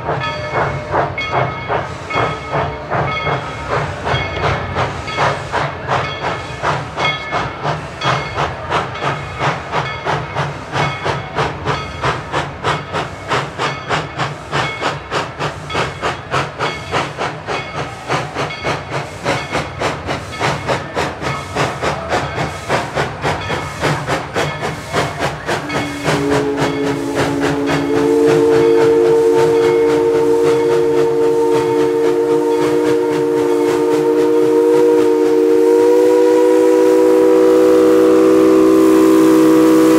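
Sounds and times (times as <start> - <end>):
steam locomotive chuffing: 0.0 - 39.9
locomotive chime whistle blast: 25.5 - 39.9.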